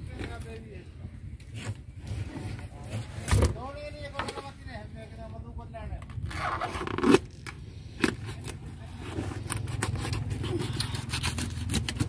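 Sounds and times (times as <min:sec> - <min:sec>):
knife cutting and scraping fish: 0:06.0 - 0:12.0.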